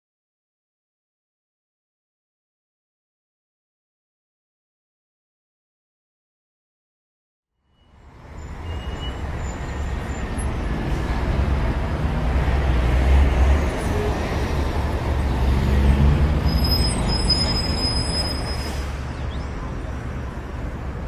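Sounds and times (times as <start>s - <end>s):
road traffic rumble: 7.7s - 21.0s.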